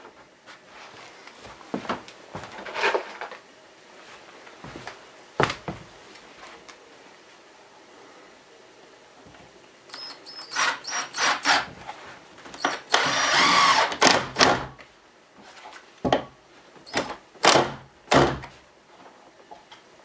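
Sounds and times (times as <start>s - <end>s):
cordless drill drilling wood: 9.9s - 11.7s, 12.6s - 14.6s.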